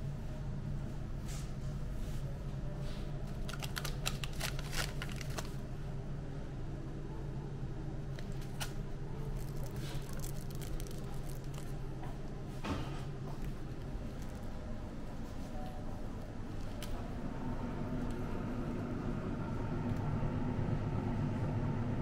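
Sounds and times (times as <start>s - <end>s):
steady low hum: 0.0s - 22.0s
packets crinkling and rustling: 3.2s - 5.7s, 8.2s - 12.0s, 13.4s - 14.6s.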